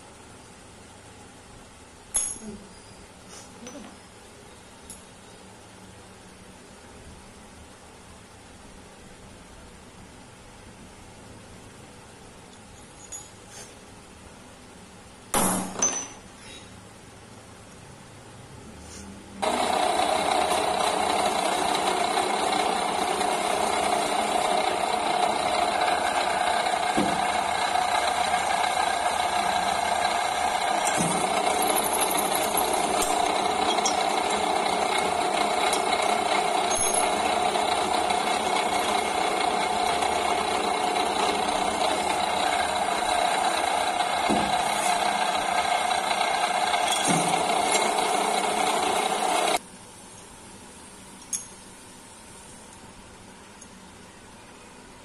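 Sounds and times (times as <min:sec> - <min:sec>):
drill press motor whine: 0:19.4 - 0:49.6.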